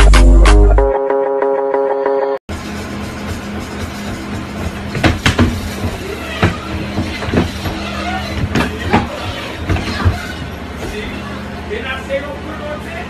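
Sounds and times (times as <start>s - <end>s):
treadmill motor and belt hum: 2.5s - 13.0s
thumps and knocks on floor: 4.6s - 7.8s.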